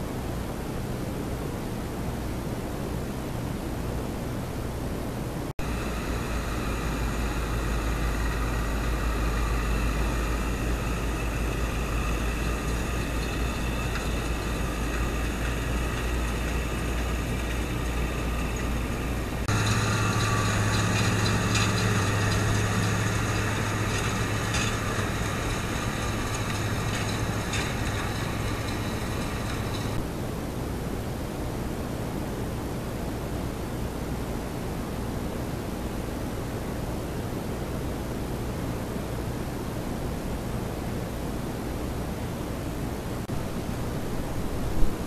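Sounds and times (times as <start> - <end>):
tractor engine running: 5.6 - 30.1.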